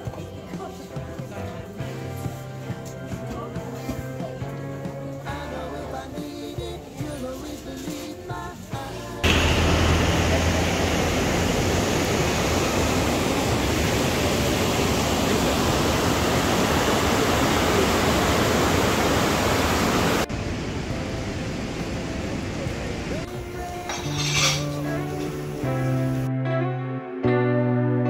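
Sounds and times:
water rushing over weir: 9.2 - 23.3.

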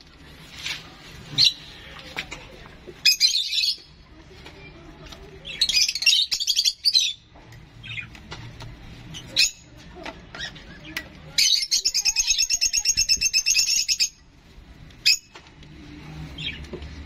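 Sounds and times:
young bird chirping: 11.6 - 14.2.

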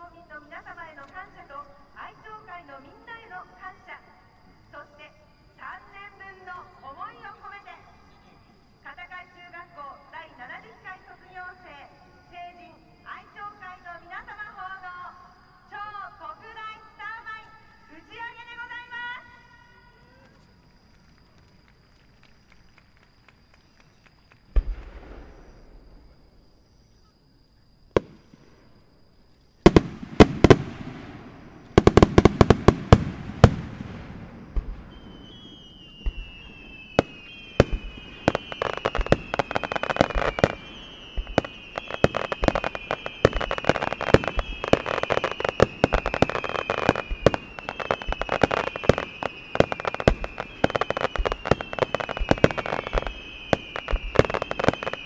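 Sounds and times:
falling firework whistles: 17.2 - 55.0
firework bangs: 24.4 - 26.2, 27.9 - 28.8, 29.6 - 55.0
firework launch thumps and bursts: 24.5 - 26.1, 27.9 - 28.6, 29.7 - 36.4, 37.0 - 55.0.

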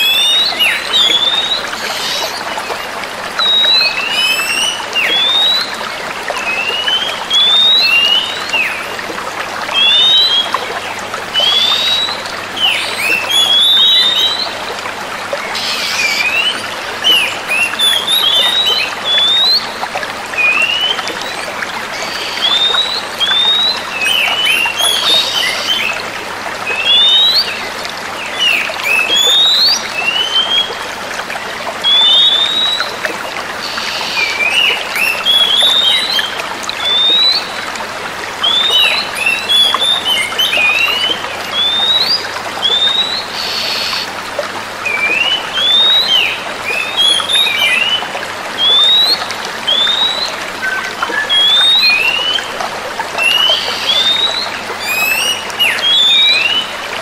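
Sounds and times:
birds chirping: 33.6 - 37.6.

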